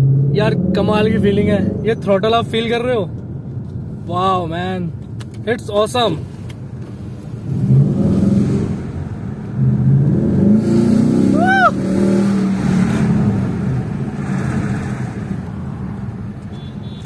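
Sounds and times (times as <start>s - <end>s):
car engine under throttle: 6.6s - 16.4s.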